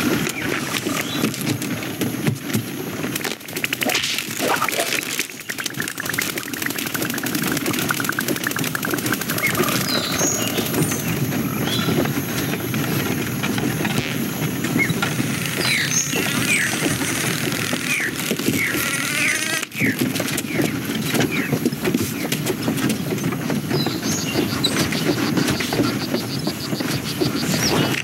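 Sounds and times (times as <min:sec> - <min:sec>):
steady rushing ambience: 0:00.0 - 0:16.7
rapid flutter: 0:00.0 - 0:28.0.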